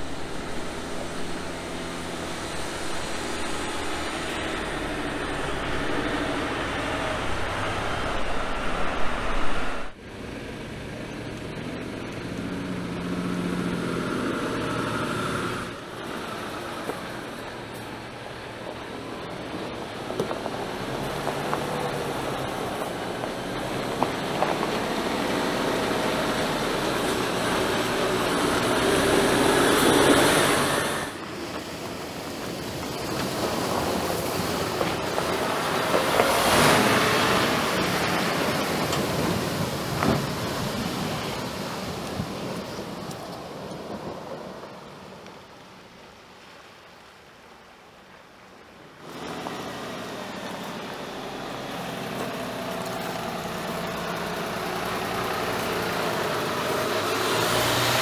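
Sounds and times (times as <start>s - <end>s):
water splashing: 0.0s - 10.0s, 13.6s - 58.0s
truck diesel engine running: 0.0s - 13.2s, 49.7s - 58.0s
truck diesel engine passing: 0.0s - 45.6s, 49.0s - 58.0s.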